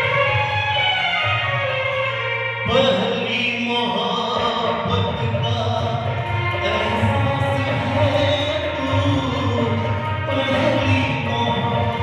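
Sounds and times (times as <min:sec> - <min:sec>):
man singing into a microphone: 0:02.6 - 0:12.0.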